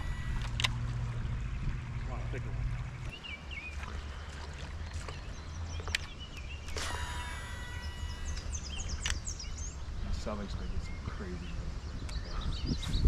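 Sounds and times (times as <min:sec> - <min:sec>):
fishing reel whining: 0:00.0 - 0:00.8, 0:06.7 - 0:09.4
steady low rumble: 0:00.0 - 0:06.5
birds chirping: 0:00.0 - 0:13.0.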